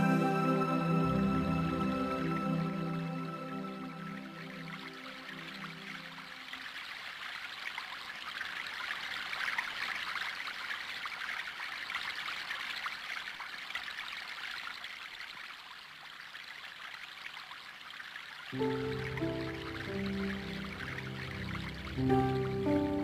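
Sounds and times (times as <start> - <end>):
low musical tone: 0.0 - 6.5, 18.6 - 23.0
stream water babbling: 0.0 - 23.0.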